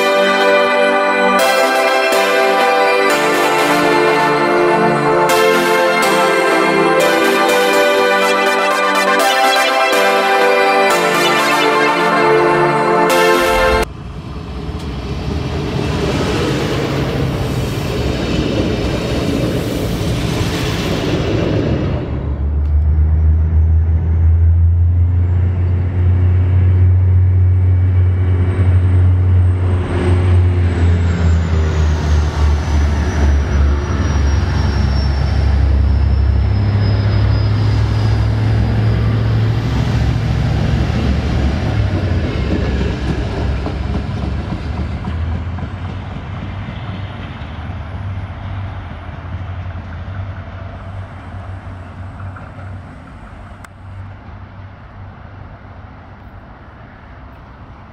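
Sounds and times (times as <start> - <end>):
diesel train engine drone: 0.0 - 57.9
rail and wheel noise: 13.5 - 57.9
high-pitched whine: 20.6 - 42.0.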